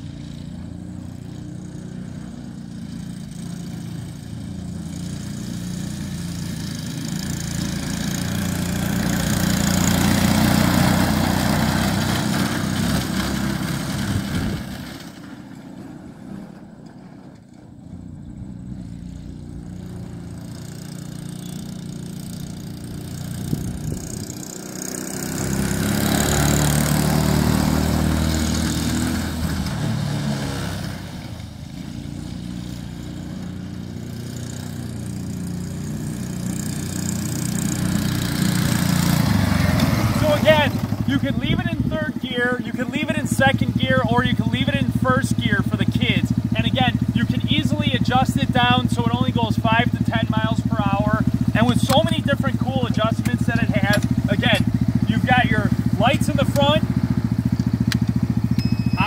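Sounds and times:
small vehicle engine running: 0.0 - 59.0.

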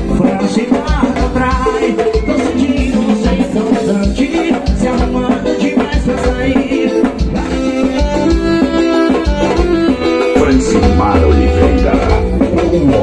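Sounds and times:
person singing: 0.0 - 9.2, 10.2 - 13.0
keyboard: 0.0 - 13.0
steady low drum beat: 9.3 - 13.0.

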